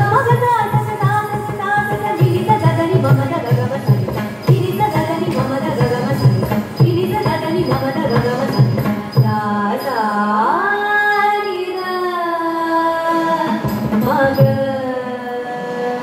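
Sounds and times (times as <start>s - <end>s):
drum strokes: 0.0s - 9.5s.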